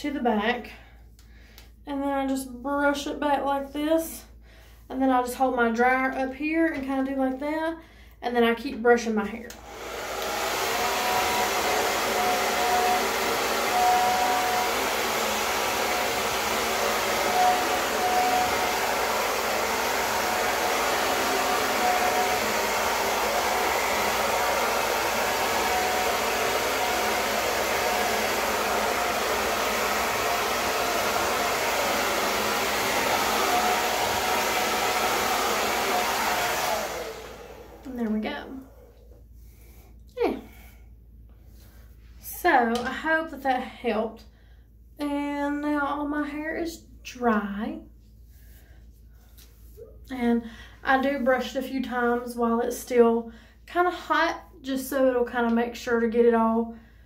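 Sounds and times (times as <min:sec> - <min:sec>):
hair dryer blowing: 0:09.5 - 0:38.9.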